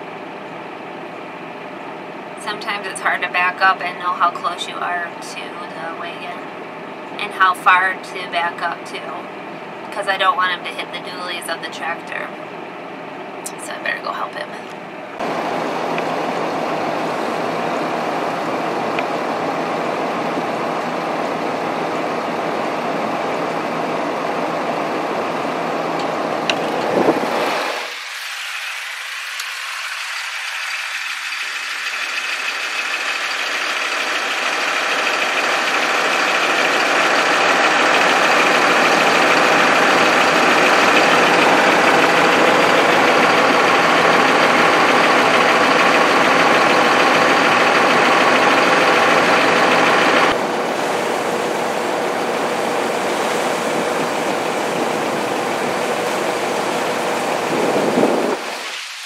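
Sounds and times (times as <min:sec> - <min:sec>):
tractor engine running: 0:15.2 - 0:58.5.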